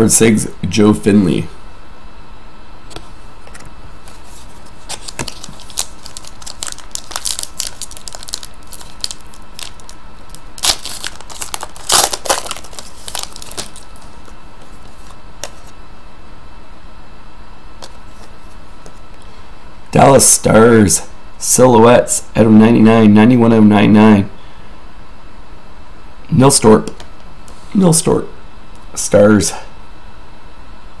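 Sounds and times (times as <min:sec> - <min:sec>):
foil wrapper crinkling and tearing: 0:04.7 - 0:15.7.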